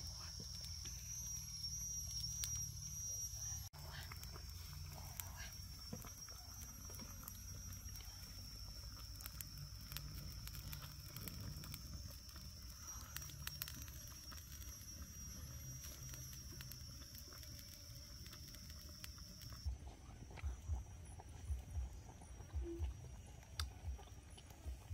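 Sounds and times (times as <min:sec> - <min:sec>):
high-pitched insect drone: 0:00.0 - 0:24.0
wood fire crackling: 0:00.0 - 0:24.9
soft low thumps: 0:19.6 - 0:24.0.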